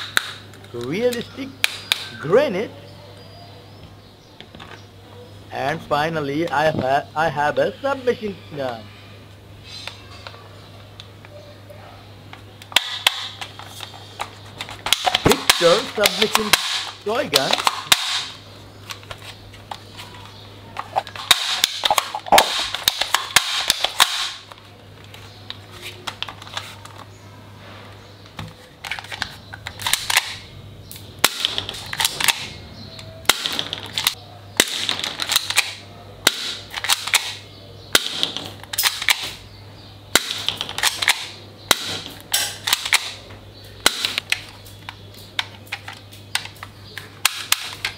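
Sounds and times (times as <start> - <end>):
plastic toy guns clicking: 0.0 - 2.2, 12.6 - 19.8, 20.8 - 24.6, 28.8 - 39.4, 40.1 - 43.2, 43.8 - 47.9.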